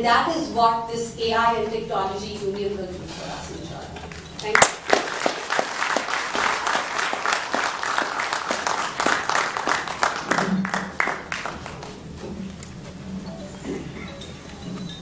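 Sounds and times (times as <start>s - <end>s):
audience applauding: 4.4s - 12.1s.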